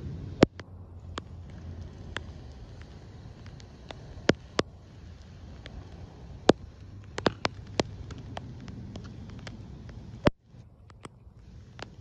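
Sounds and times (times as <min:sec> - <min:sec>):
faint low rumble: 0:00.0 - 0:12.0.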